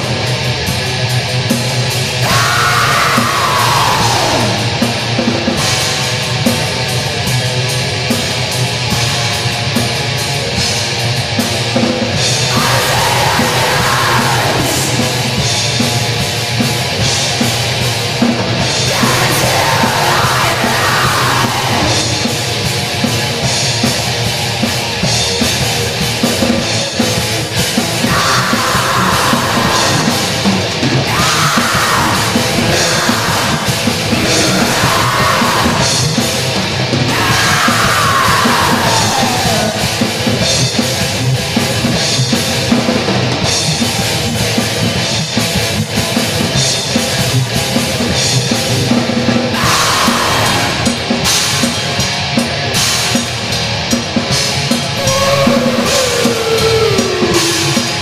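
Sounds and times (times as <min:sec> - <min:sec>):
distorted guitars and drums: 0:00.0 - 0:58.0
shrieked vocals: 0:02.2 - 0:05.0, 0:12.4 - 0:15.4, 0:18.8 - 0:22.5, 0:28.0 - 0:36.4, 0:37.1 - 0:40.0, 0:49.5 - 0:51.0, 0:55.0 - 0:58.0.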